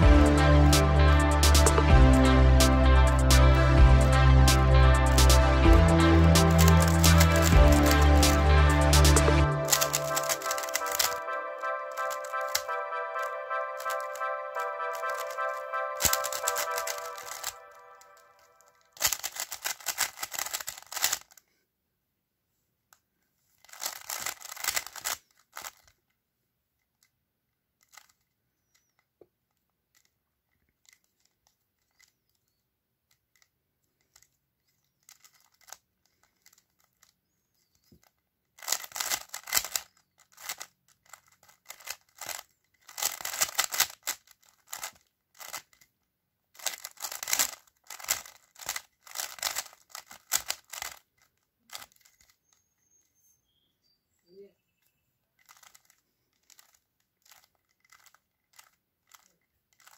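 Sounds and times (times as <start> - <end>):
plastic puzzle cube clicking: 6.4 - 11.3, 12.0 - 12.8, 13.8 - 18.2, 19.0 - 21.5, 23.6 - 26.0, 27.8 - 53.0, 55.4 - 59.9.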